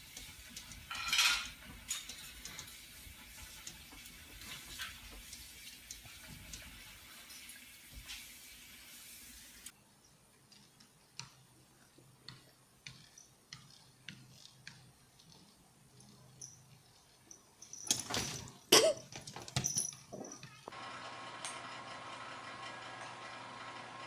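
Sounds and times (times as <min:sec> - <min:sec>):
blinds rattling and clattering: 0:00.0 - 0:07.6.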